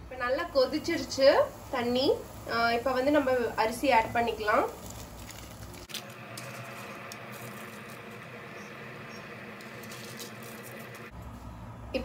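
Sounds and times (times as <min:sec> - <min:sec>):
water boiling in a pot: 0:00.5 - 0:09.8.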